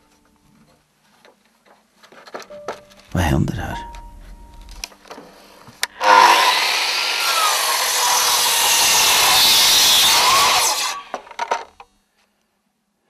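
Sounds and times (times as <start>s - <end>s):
miter saw cutting wood: 5.9s - 11.4s.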